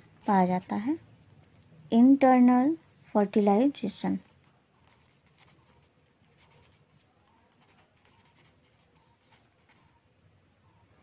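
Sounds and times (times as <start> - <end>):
faint pen scratching on paper: 0.0 - 1.0, 4.0 - 10.8.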